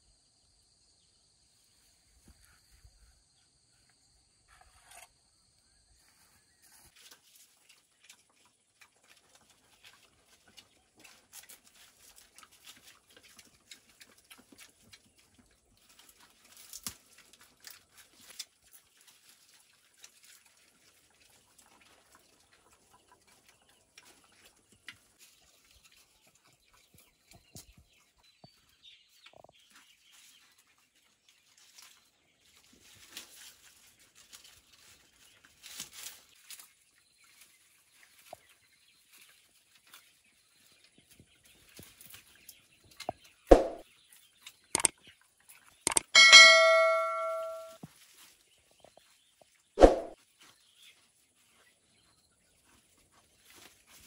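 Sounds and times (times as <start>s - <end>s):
boar rustling and crunching grass: 6.0s - 45.8s, 47.8s - 54.0s
sharp clicks: 45.9s - 46.1s
bell-like chime: 46.1s - 47.8s.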